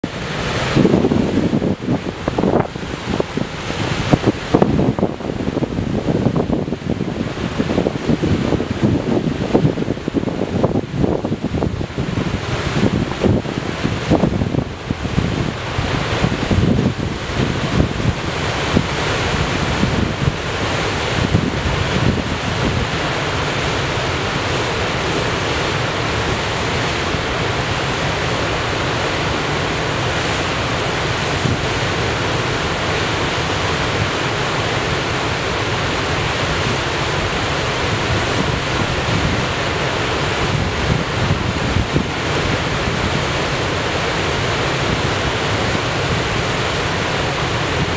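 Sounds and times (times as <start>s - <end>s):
water rushing and churning: 0.0s - 47.9s
wind buffeting microphone: 0.0s - 47.9s.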